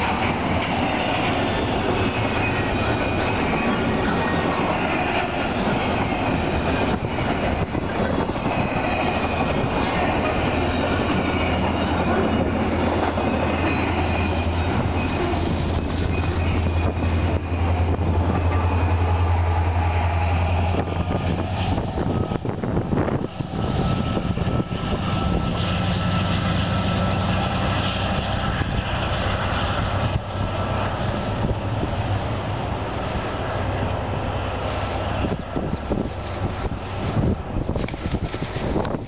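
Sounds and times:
freight train rolling past: 0.0s - 39.0s
locomotive engine drone: 0.0s - 39.0s.

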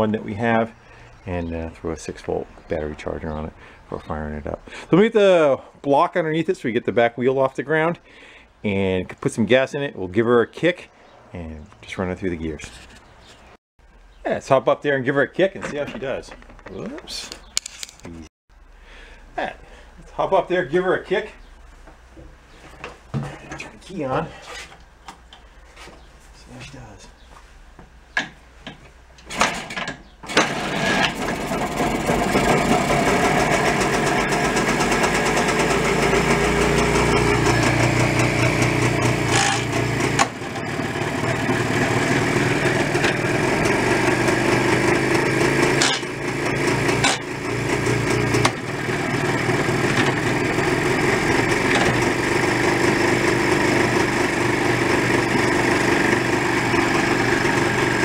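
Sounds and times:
motorcycle engine running: 30.4s - 58.0s
kick starter clicks: 38.1s - 40.4s.

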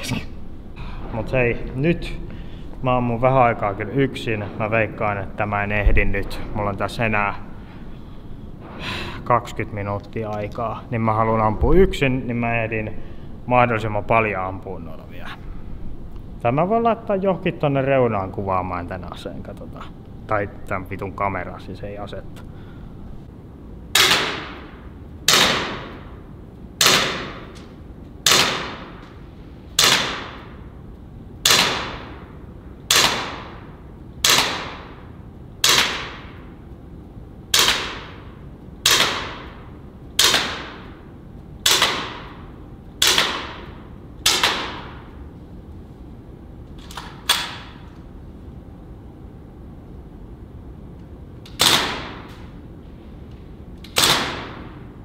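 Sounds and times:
air pistol shots echoing: 23.9s - 26.2s, 26.8s - 27.6s, 28.2s - 29.1s, 29.7s - 30.7s, 31.4s - 36.5s, 37.5s - 41.0s, 41.6s - 45.2s, 51.5s - 52.4s, 53.9s - 54.9s.

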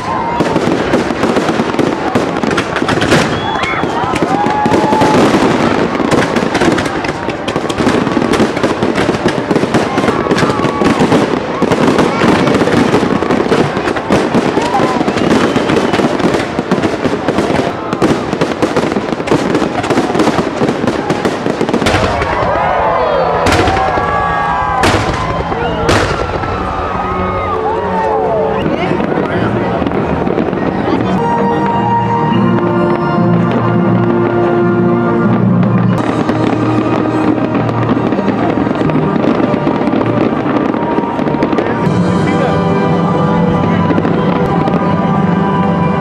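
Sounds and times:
fireworks crackling: 0.0s - 46.0s
firework whistles gliding in pitch: 3.0s - 5.4s, 14.6s - 16.3s
music with long held notes: 25.8s - 46.0s.

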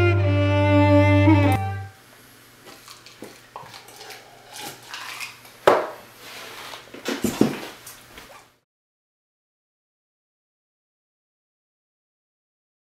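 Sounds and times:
bowed strings over a drone: 0.0s - 1.9s.

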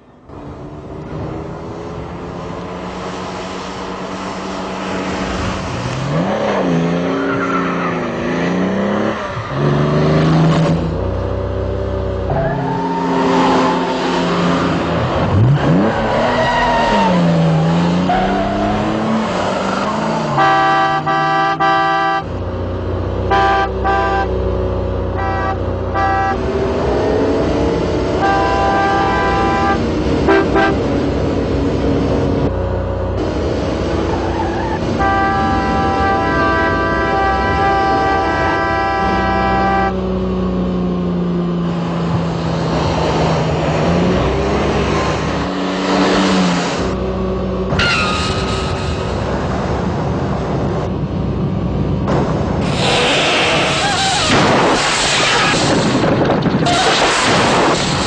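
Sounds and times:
car engines revving: 0.0s - 58.0s
car horn: 20.3s - 22.3s, 23.3s - 24.4s, 25.1s - 26.6s, 28.1s - 30.9s, 34.6s - 40.0s.

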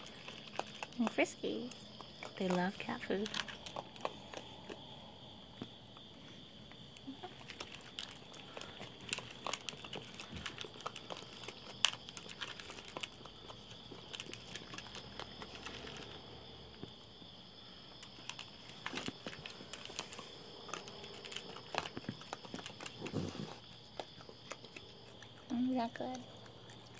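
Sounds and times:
raccoons crunching kibble: 0.0s - 26.9s.

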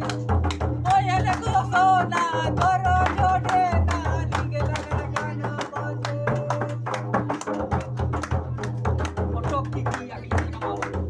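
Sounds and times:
hand clapping: 0.0s - 11.0s
man singing: 0.8s - 7.4s.

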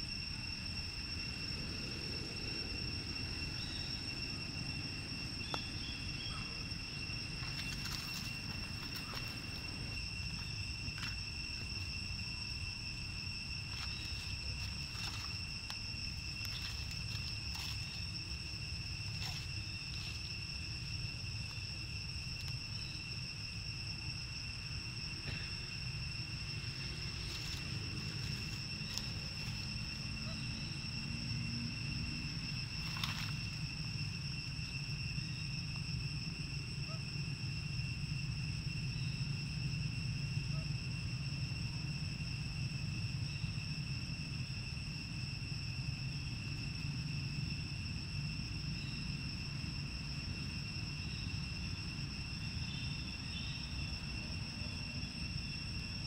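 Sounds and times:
insects droning: 0.0s - 56.0s
faint ticks and rustles: 7.4s - 11.8s, 13.7s - 18.2s, 19.1s - 20.4s, 32.8s - 33.7s.

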